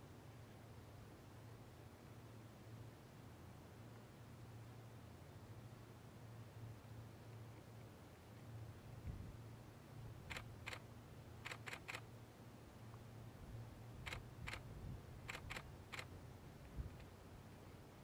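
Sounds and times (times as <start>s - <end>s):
camera shutter clicks: 10.3s - 10.8s, 11.4s - 12.1s, 14.1s - 14.6s, 15.3s - 16.1s.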